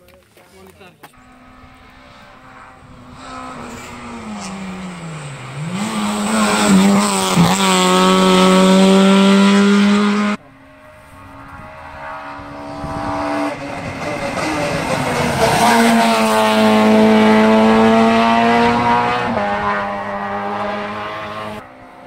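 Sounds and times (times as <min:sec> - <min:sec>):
race car engine revving: 0:01.2 - 0:21.7
car engine approaching: 0:01.2 - 0:22.0.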